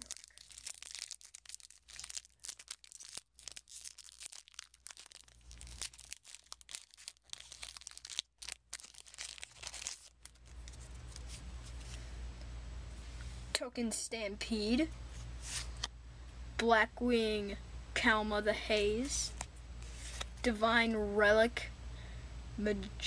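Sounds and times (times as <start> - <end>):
wrapper tearing and crinkling: 0.0 - 11.8.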